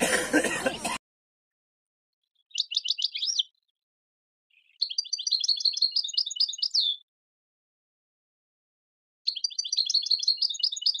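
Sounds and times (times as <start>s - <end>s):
finches twittering: 2.4s - 3.6s, 4.5s - 7.0s, 9.3s - 11.0s.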